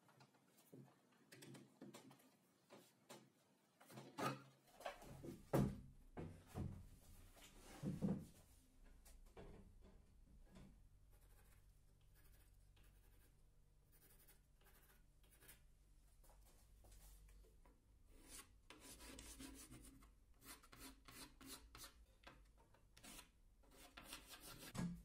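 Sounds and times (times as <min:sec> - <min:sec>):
faint pencil scratching: 0:11.0 - 0:15.7, 0:18.1 - 0:22.0, 0:23.0 - 0:24.8.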